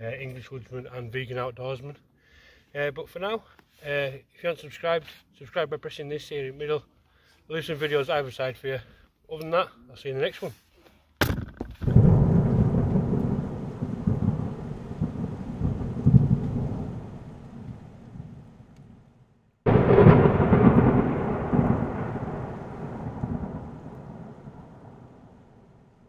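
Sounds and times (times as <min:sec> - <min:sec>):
thunder-like booms rumbling: 0:11.8 - 0:19.1, 0:19.7 - 0:26.0.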